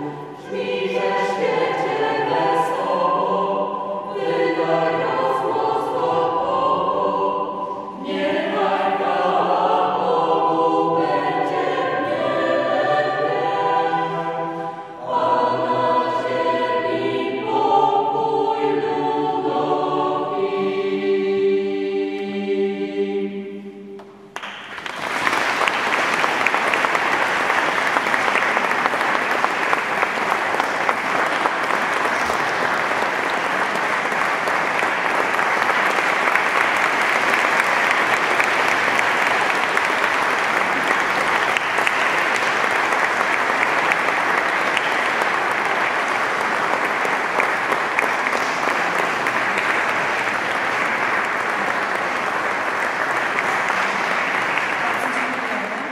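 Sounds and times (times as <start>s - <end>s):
choral singing: 0.0s - 55.4s
audience applauding: 24.0s - 55.9s.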